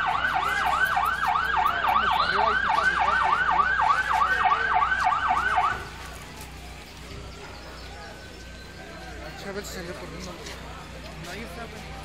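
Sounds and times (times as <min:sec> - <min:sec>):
fire engine siren yelping: 0:00.0 - 0:06.0.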